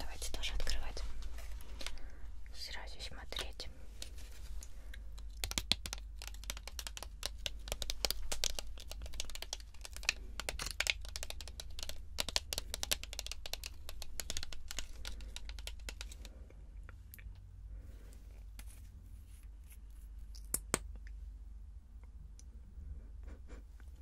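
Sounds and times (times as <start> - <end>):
plastic crinkling: 3.9 - 16.3
fingernails tapping plastic: 5.3 - 16.2.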